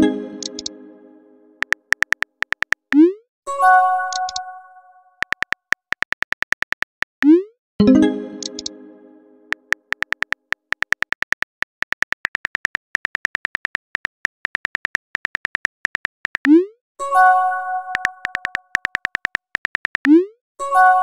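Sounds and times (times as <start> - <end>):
phone keyboard typing clicks: 0.4 - 0.7, 1.6 - 3.0, 4.1 - 4.4, 5.2 - 7.3, 8.4 - 8.7, 9.5 - 16.6, 17.9 - 20.2
message chime: 7.8 - 9.4.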